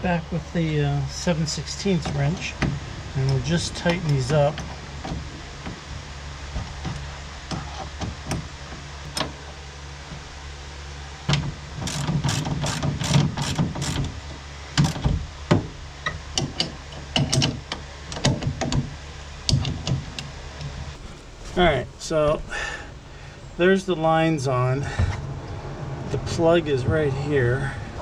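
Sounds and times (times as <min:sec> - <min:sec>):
steady low hum: 0:00.0 - 0:28.0
wrench clicking on fittings: 0:11.8 - 0:14.1.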